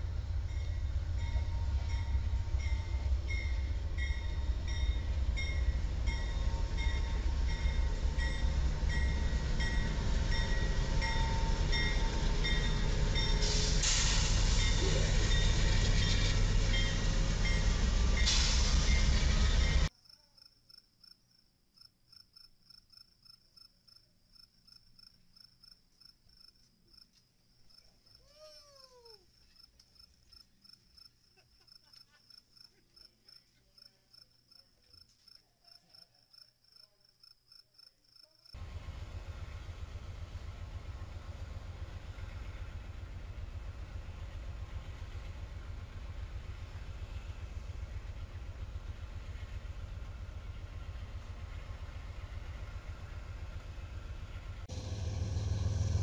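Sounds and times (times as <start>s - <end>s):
passenger train running past: 0.0s - 19.9s, 38.6s - 56.0s
crickets chirping: 0.1s - 15.7s, 18.8s - 38.8s.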